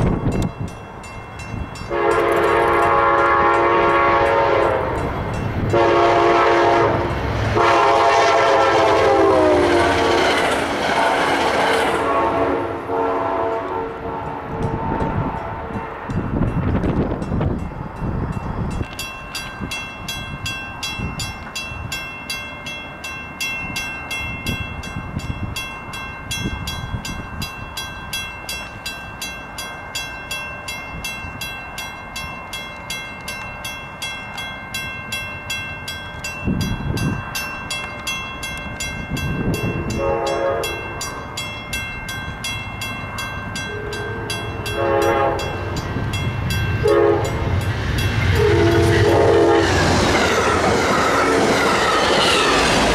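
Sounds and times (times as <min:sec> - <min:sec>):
crossing warning bell ringing: 0:00.0 - 0:52.9
diesel locomotive engine rumble: 0:00.0 - 0:52.9
locomotive air horn blasts: 0:01.9 - 0:05.0, 0:05.7 - 0:16.1, 0:39.9 - 0:40.9, 0:43.7 - 0:45.6, 0:46.8 - 0:47.6, 0:48.3 - 0:49.9.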